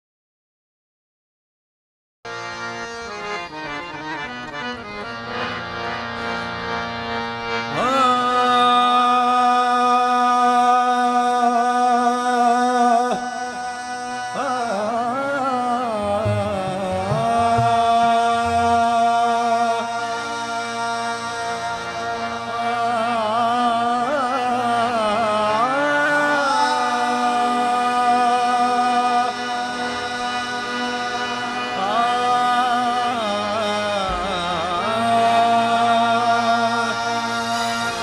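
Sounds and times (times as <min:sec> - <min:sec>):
harmonium: 0:02.3 - 0:38.0
tabla strokes: 0:16.0 - 0:19.1, 0:34.0 - 0:35.2.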